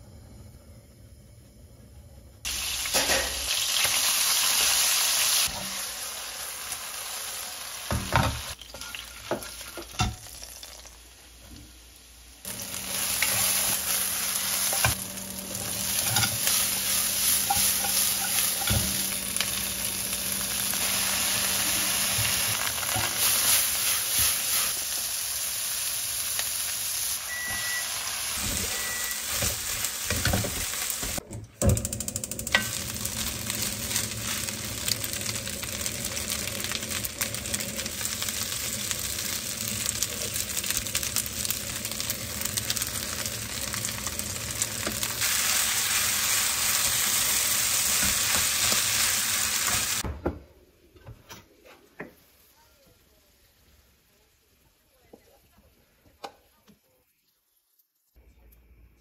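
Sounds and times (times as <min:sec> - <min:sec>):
food sizzling in hot oil: 0:02.4 - 0:31.2, 0:32.0 - 0:50.0.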